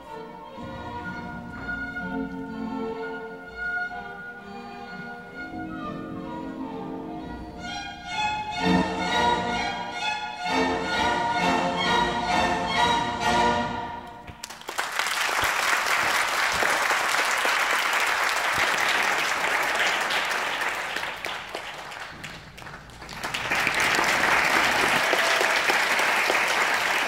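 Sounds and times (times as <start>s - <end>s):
classical string music: 0.0s - 14.4s
audience applauding: 14.3s - 27.0s.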